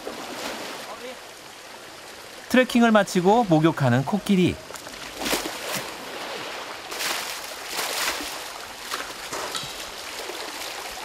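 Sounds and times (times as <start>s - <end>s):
stream water flowing: 0.0s - 11.0s
water splashing and pouring: 4.7s - 11.0s.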